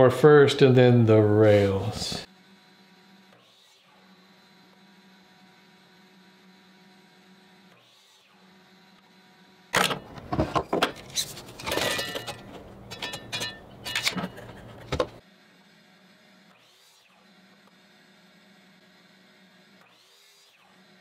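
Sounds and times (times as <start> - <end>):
miter saw cutting wood: 0.6 - 10.4.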